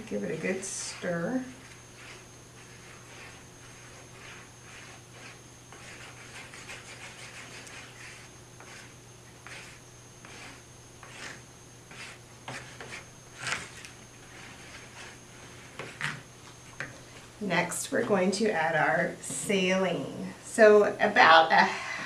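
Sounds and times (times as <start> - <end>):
plastic spoon stirring glue: 0.4 - 17.0.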